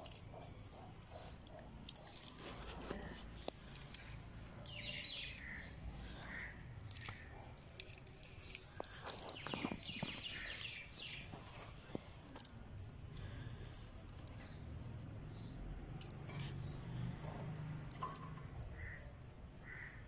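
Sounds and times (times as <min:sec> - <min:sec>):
fingers scratching gritty soil: 0:00.0 - 0:13.0
bird chirping: 0:02.9 - 0:13.5.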